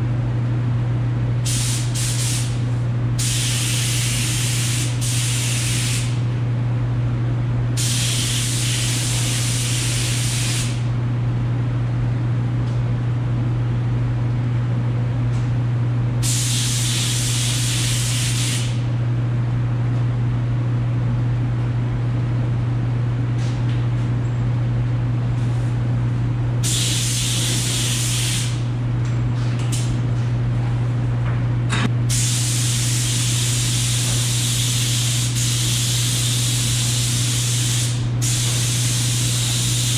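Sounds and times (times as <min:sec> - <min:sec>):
paint spray gun hissing: 0:01.5 - 0:02.6, 0:03.2 - 0:06.2, 0:07.8 - 0:10.8, 0:16.2 - 0:18.8, 0:26.6 - 0:28.6, 0:32.1 - 0:39.9.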